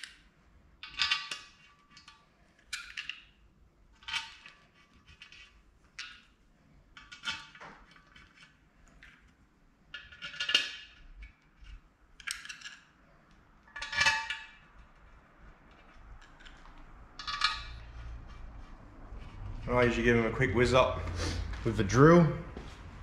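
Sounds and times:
soft metallic rattles: 9.9s - 20.1s
metal bolts clinking in dish: 13.7s - 14.6s, 17.2s - 17.8s.

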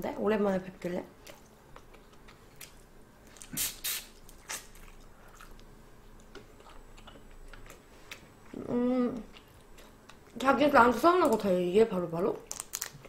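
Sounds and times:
chewing close to microphone: 4.3s - 10.4s
shrimp shells cracking: 12.4s - 13.0s.

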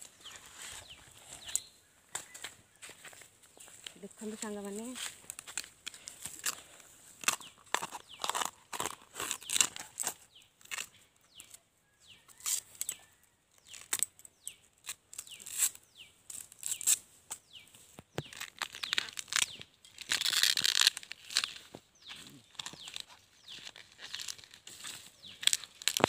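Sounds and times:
bird chirps: 0.0s - 4.6s, 21.4s - 26.0s
husk tearing and snapping: 5.0s - 11.6s, 13.6s - 17.4s, 18.0s - 26.0s.

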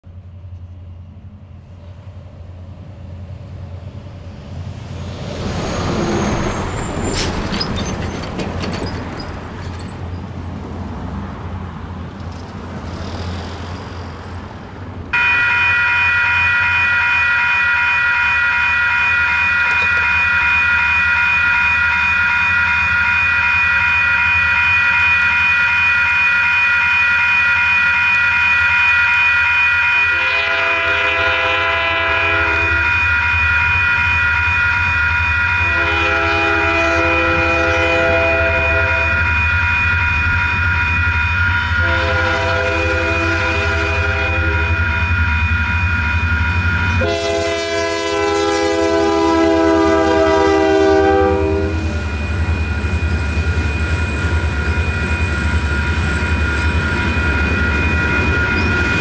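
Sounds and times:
cars passing: 9.4s - 15.2s
scratchy electronic crossing bell: 15.2s - 30.2s, 38.8s - 41.9s, 52.0s - 59.0s.

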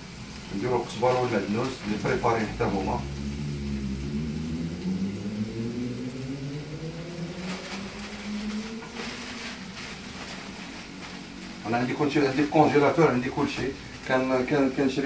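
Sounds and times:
plastic bag crinkling: 0.4s - 3.0s, 7.2s - 15.0s
motor hum rising in pitch: 2.6s - 10.3s.

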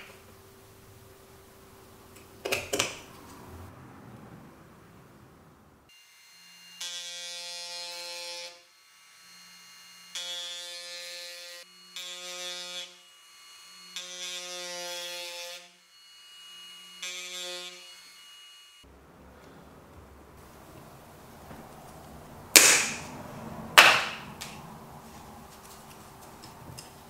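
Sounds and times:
low motor hum: 18.9s - 27.0s.

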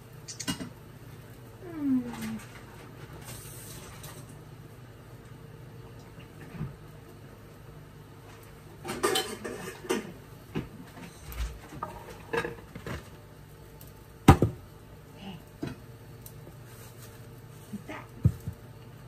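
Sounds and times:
utensils and dishes clattering: 8.8s - 10.2s, 11.8s - 13.0s.

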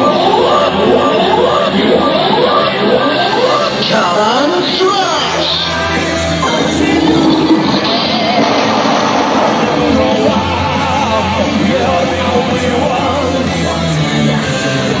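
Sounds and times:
song over pa speaker: 0.0s - 15.0s.

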